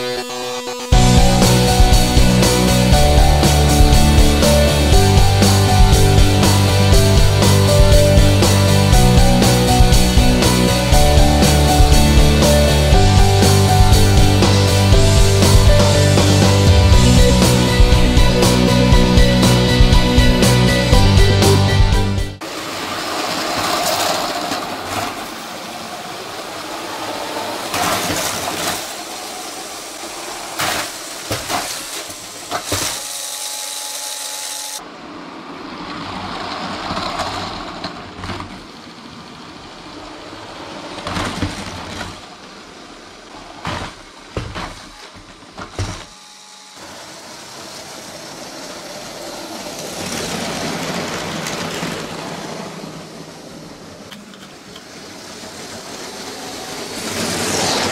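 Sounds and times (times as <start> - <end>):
small electric motor whirring: 32.7 - 34.8, 46.0 - 48.8
train wheels clicking over track joints: 35.8 - 39.0, 47.4 - 57.6.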